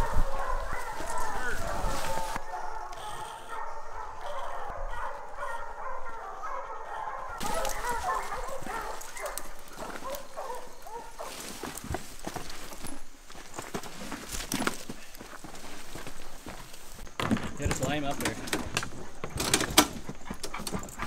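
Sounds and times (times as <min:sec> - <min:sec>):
hounds whining and yelping: 0:00.0 - 0:11.5.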